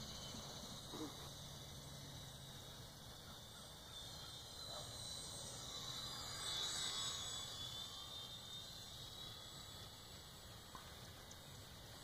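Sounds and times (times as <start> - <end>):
model plane motor droning: 0.0 - 12.0.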